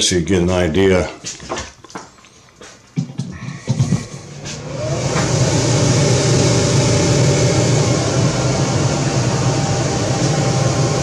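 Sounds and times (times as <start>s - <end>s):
blower motor whining: 4.2s - 11.0s.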